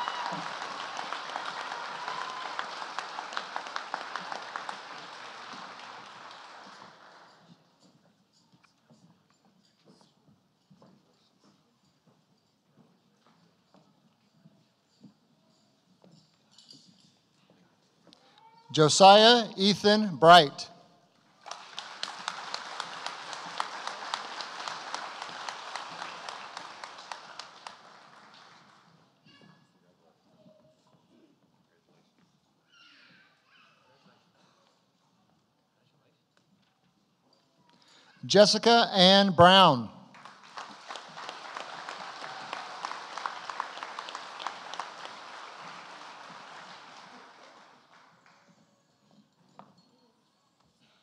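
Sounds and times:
audience applauding: 0.0s - 7.4s, 21.4s - 28.8s, 39.4s - 48.4s.

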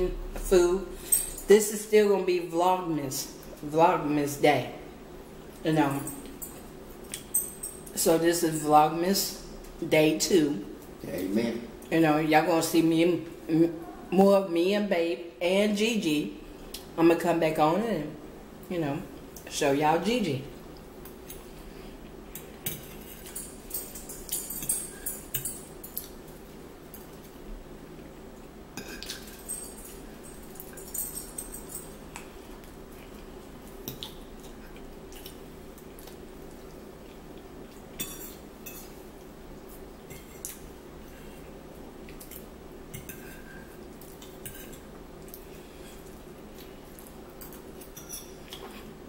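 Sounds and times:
steady low hum: 0.0s - 49.0s
forks clinking on plates: 22.4s - 26.1s, 28.8s - 32.0s, 38.0s - 39.0s, 47.4s - 48.8s.

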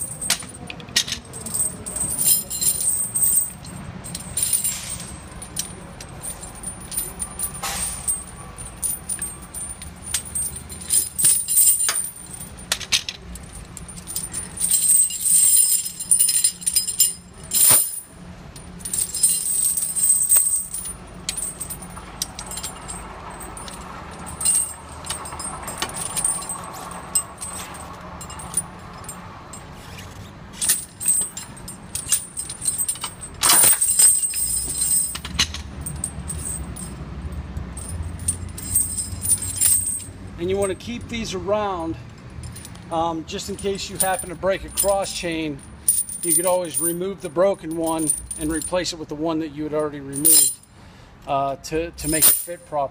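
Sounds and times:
sharp metal clanks: 0.0s - 29.7s, 30.6s - 37.0s
tire chains jangling: 0.0s - 52.9s.

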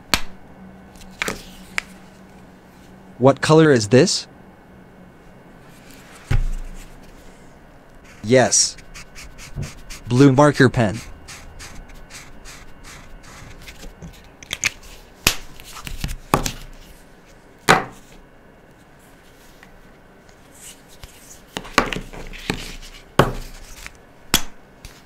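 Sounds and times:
marker scratching on paper: 8.0s - 13.9s.

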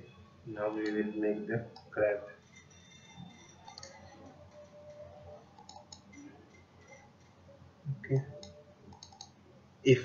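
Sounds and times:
low room noise: 0.0s - 10.0s
computer mouse clicks: 3.4s - 7.1s, 8.1s - 9.4s.

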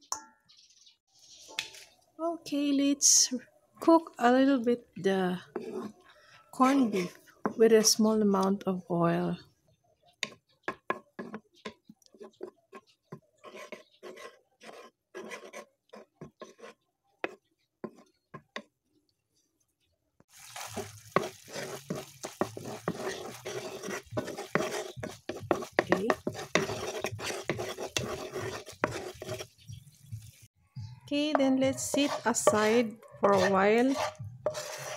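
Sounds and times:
wooden spatula scraping a pan: 5.4s - 8.0s, 10.8s - 18.7s, 20.4s - 29.6s, 31.3s - 34.9s
frying sizzle: 20.3s - 26.4s.

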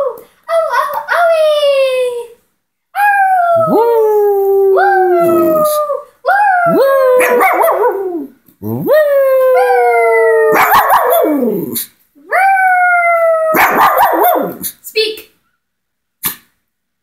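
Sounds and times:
dog howling: 3.0s - 11.8s.

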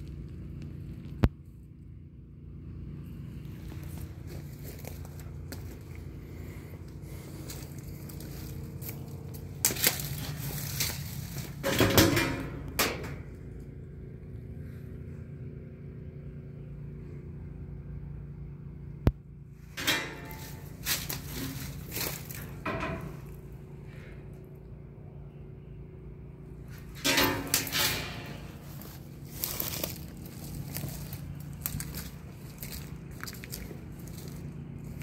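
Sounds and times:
steady low hum: 0.0s - 35.0s
footsteps crunching dry leaves: 3.3s - 11.6s, 20.3s - 23.4s, 27.6s - 35.0s.

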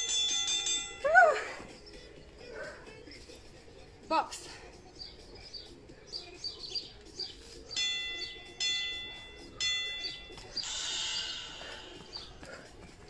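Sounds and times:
ringing chime tones: 0.0s - 1.4s, 7.7s - 12.0s
small birds chirping: 1.6s - 13.0s
brief rushing hiss: 10.6s - 12.2s.

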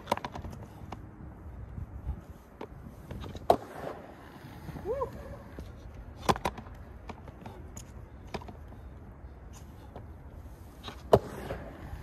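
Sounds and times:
steady background noise: 0.0s - 12.0s
sharp skateboard clack: 6.2s - 7.3s, 10.8s - 12.0s.

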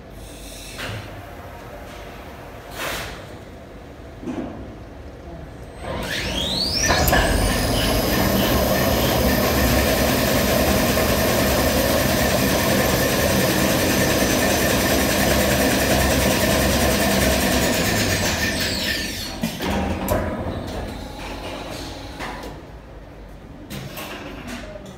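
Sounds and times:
machine line whining: 5.8s - 19.5s
rollers and drive running: 6.8s - 18.8s.

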